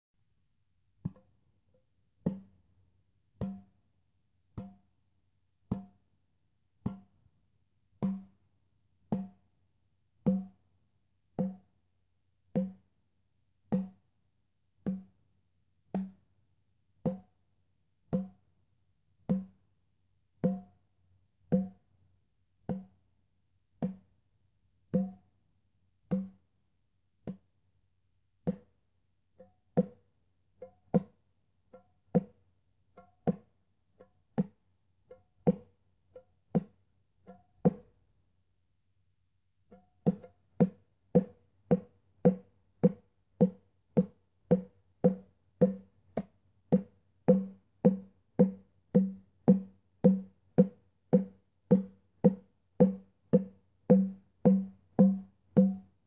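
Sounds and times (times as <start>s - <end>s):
hand drum beating slowly: 39.7s - 55.9s.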